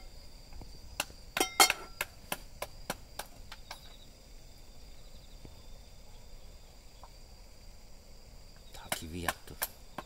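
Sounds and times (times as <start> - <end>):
crickets trilling: 0.0 - 10.0.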